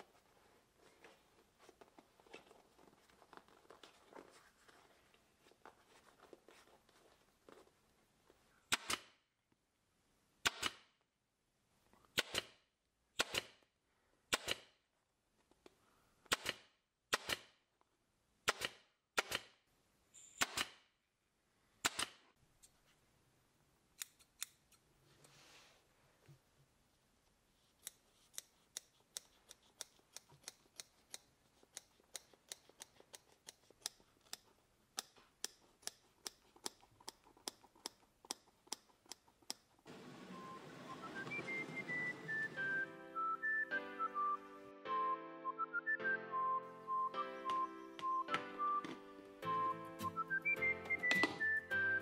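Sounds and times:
cover rustling: 0:00.0 - 0:08.4
staple gun shots: 0:08.7 - 0:09.2, 0:10.4 - 0:10.9, 0:12.2 - 0:12.6, 0:13.2 - 0:13.6, 0:14.3 - 0:14.8, 0:16.3 - 0:17.6, 0:18.4 - 0:19.6, 0:20.4 - 0:20.9, 0:21.8 - 0:22.2.

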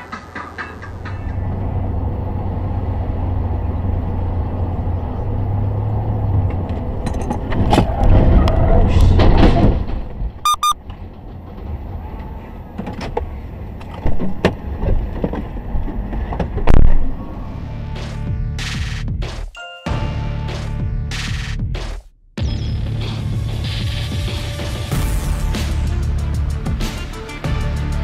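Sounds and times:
braking and crash noise: 0:00.0 - 0:18.4
road and engine noise: 0:00.0 - 0:19.1
short electronic beeps: 0:10.4 - 0:10.8.

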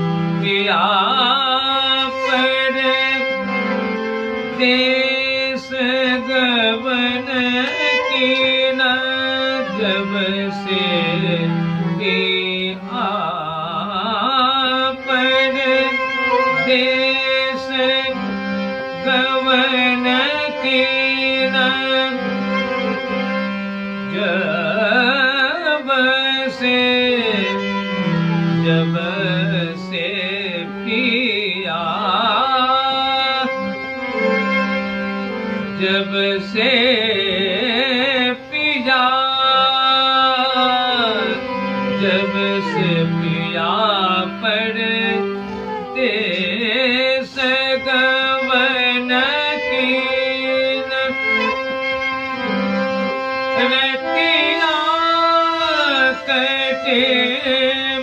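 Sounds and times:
harmonium chords: 0:00.0 - 0:58.0
violin playing ornamented phrases: 0:00.0 - 0:58.0.

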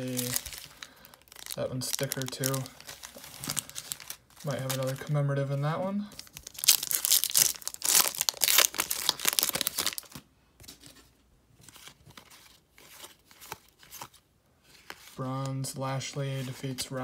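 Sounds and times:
cards rustling and flicking: 0:00.0 - 0:05.1, 0:11.6 - 0:15.6
wrapper tearing and crinkling: 0:00.0 - 0:05.1, 0:06.1 - 0:10.2.

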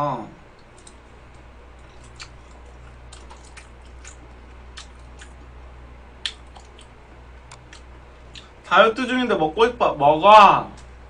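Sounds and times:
low steady hum: 0:00.0 - 0:11.0
wet mouth clicks chewing: 0:00.6 - 0:05.5, 0:06.2 - 0:08.5.

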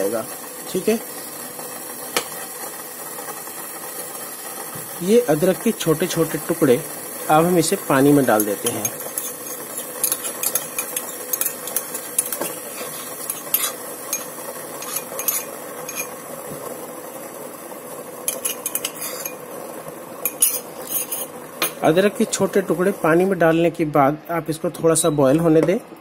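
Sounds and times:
steel bowl clinking on saucepan: 0:08.4 - 0:12.6.

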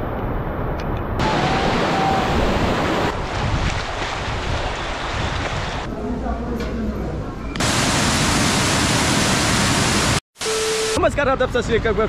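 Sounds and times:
waterfall roaring: 0:01.2 - 0:03.2, 0:07.6 - 0:10.2.

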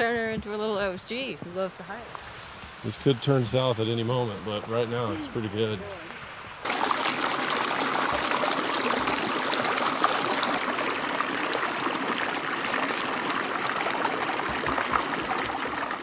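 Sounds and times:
brook splashing over rocks: 0:06.6 - 0:16.0.

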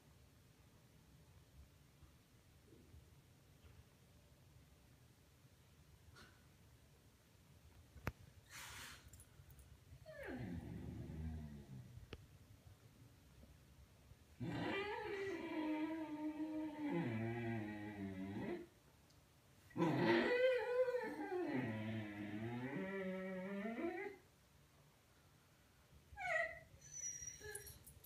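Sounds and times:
dog whining: 0:10.0 - 0:11.8, 0:14.4 - 0:18.6, 0:19.7 - 0:24.2, 0:26.2 - 0:28.0
dog howling: 0:14.4 - 0:18.6, 0:19.8 - 0:24.2.

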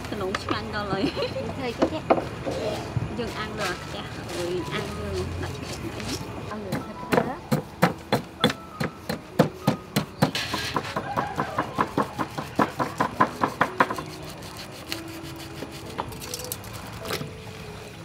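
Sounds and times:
pestle pounding in stone mortar: 0:06.6 - 0:14.3.

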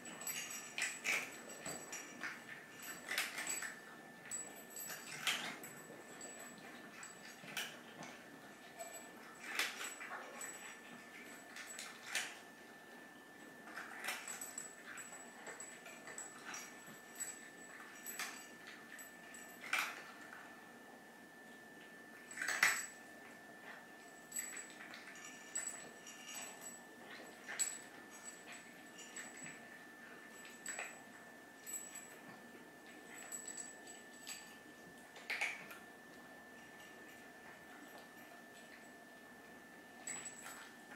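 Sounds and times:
cats crunching food: 0:00.0 - 0:20.7, 0:21.8 - 0:38.9.

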